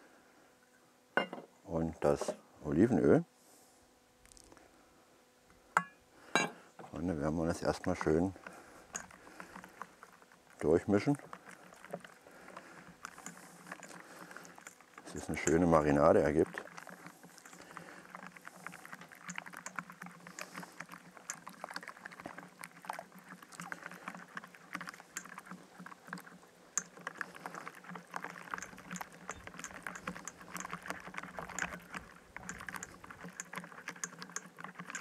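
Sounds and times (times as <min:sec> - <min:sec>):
wire whisk scraping metal bowl: 0:07.2 - 0:26.1, 0:26.8 - 0:35.0.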